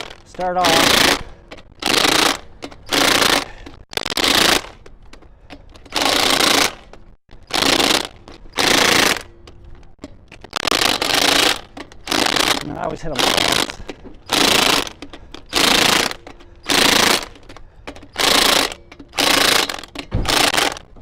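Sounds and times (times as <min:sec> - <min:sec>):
impact wrench hammering: 0:07.5 - 0:09.3, 0:10.6 - 0:17.4, 0:18.0 - 0:20.9.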